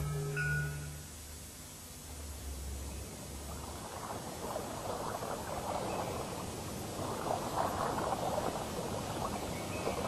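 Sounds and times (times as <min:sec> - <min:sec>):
crackling patter of water: 0:03.0 - 0:10.0.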